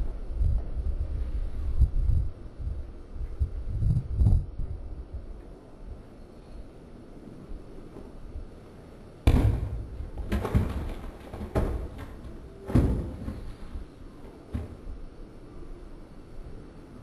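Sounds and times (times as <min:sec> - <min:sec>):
blocks thudding and clattering: 0:09.3 - 0:15.1.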